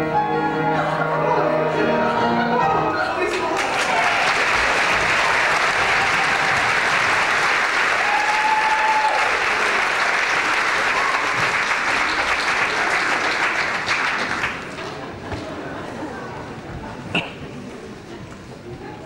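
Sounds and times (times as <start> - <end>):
audience applauding: 3.2 - 15.2.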